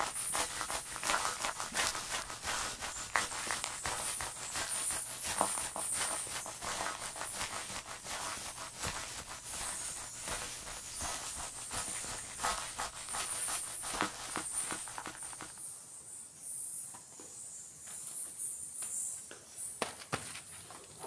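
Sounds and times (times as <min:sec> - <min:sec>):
footsteps on rock: 0:00.0 - 0:15.6.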